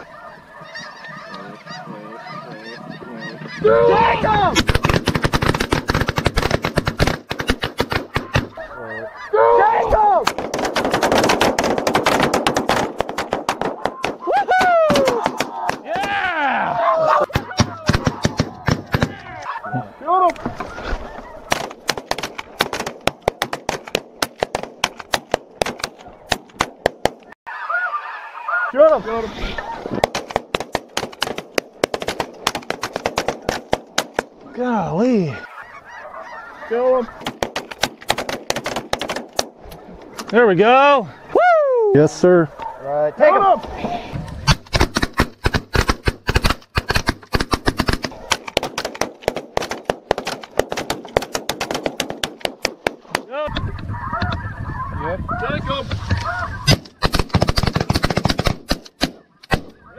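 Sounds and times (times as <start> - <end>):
geese honking: 0.0 - 4.9, 8.1 - 10.2, 13.8 - 21.8, 27.5 - 30.1, 33.1 - 37.4, 39.8 - 41.4, 42.2 - 44.4, 53.4 - 56.8, 59.2 - 59.9
shotguns firing: 4.5 - 8.6, 10.2 - 14.3, 14.9 - 16.1, 21.5 - 27.3, 29.9 - 34.4, 37.2 - 39.6, 44.4 - 53.3, 56.7 - 59.8.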